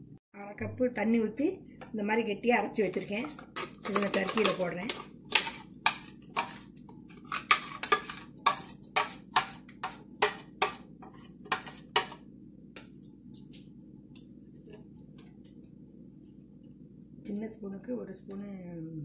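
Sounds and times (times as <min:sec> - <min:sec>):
metal spoon tapping and scraping: 0:02.8 - 0:12.2.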